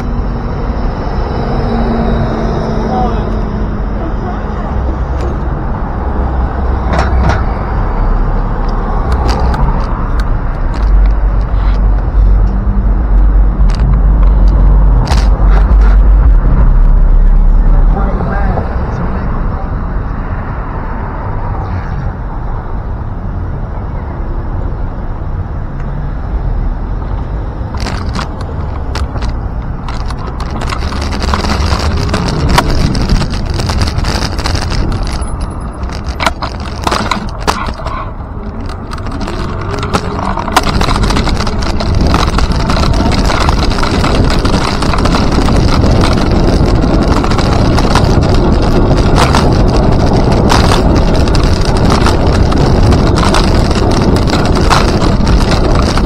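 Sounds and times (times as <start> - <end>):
tyres rolling on pavement: 0.0 - 21.6, 24.3 - 56.0
wind noise: 0.0 - 56.0
clicks and rattles: 13.6 - 16.4, 27.7 - 56.0.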